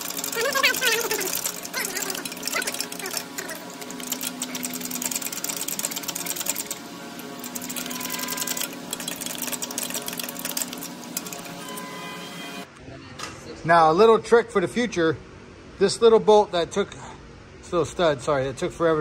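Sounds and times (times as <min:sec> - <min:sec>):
ratchet clicking rapidly: 0:00.0 - 0:11.8.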